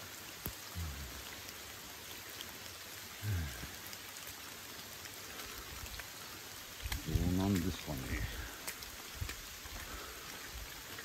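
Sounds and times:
rain on leaves: 0:00.0 - 0:11.0
man's low murmur: 0:03.2 - 0:03.8
water drops ticking: 0:03.4 - 0:10.1.

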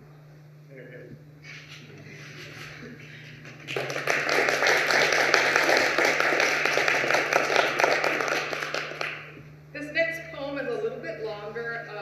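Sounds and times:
audience applauding: 0:03.4 - 0:09.4.

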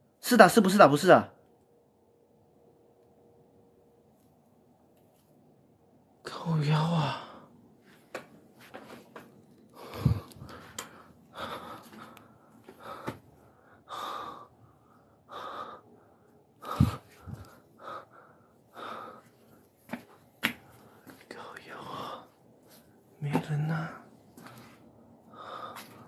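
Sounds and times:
person breathing heavily: 0:09.7 - 0:23.0, 0:23.7 - 0:26.0.

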